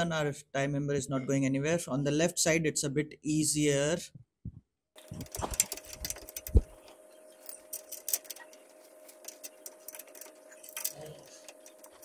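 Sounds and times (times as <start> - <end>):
faint steady hum: 5.0 - 12.0.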